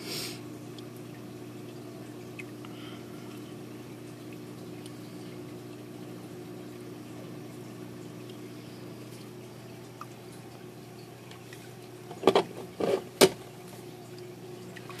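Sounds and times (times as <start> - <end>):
aquarium pump humming: 0.0 - 15.0.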